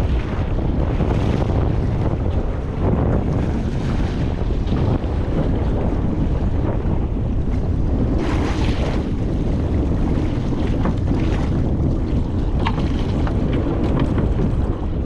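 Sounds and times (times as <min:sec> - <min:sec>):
wind buffeting microphone: 0:00.0 - 0:15.0
water sloshing around boat: 0:07.4 - 0:15.0.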